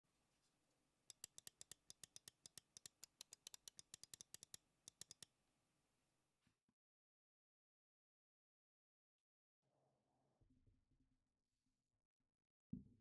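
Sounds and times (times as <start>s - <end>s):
fast typing on mechanical keyboard: 1.1s - 5.2s.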